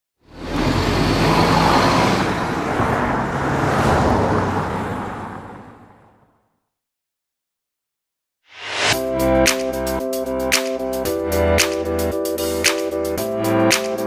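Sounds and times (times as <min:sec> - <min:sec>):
vehicle engine low hum: 0:00.2 - 0:03.7
road traffic: 0:00.2 - 0:06.6.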